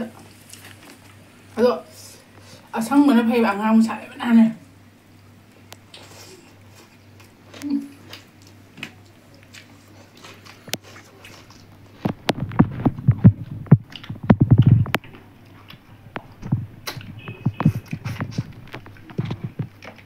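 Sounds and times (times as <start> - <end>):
faint steady hum: 0.0 - 20.0
chewing: 5.7 - 20.0.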